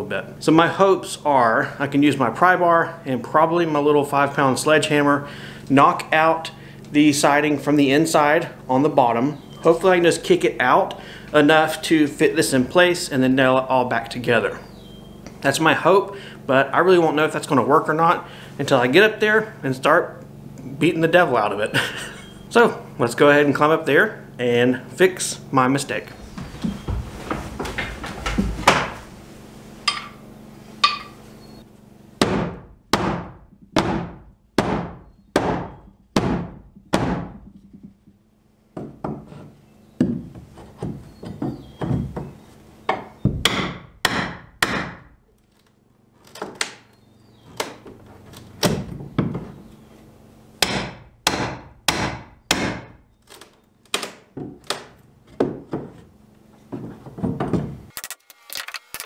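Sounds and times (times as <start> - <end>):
hammer striking steel pry bar: 29.9 - 30.2, 30.8 - 31.2, 43.3 - 45.1, 50.6 - 53.0.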